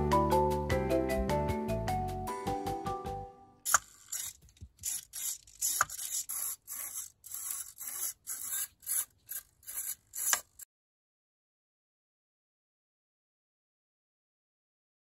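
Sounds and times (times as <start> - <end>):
servo motors whirring: 3.7 - 10.6.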